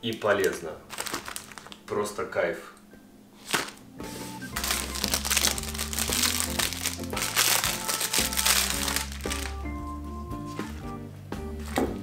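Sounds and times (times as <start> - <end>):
plastic wrapper crinkling: 0.0 - 1.9, 4.6 - 9.6
background music with held notes: 2.4 - 12.0.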